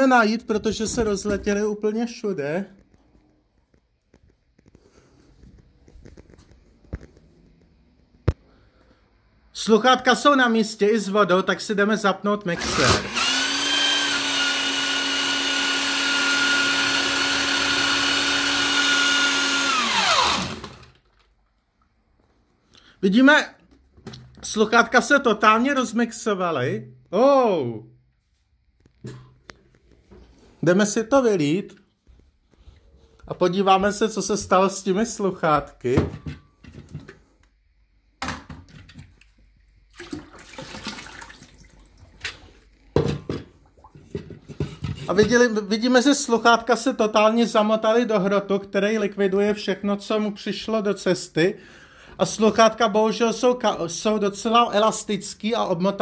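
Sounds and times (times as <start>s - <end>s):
blender motor churning: 12.6s - 21.1s
water splashing into metal sink: 39.9s - 42.3s.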